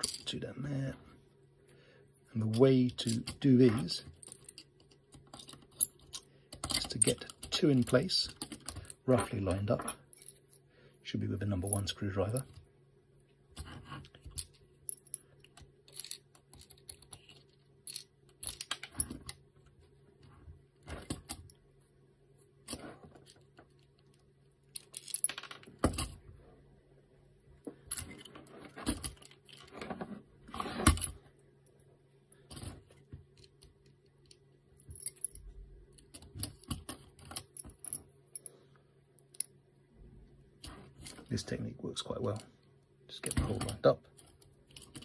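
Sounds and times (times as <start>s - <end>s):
screws clinking against plastic parts: 2.5s - 10.4s, 14.2s - 19.4s.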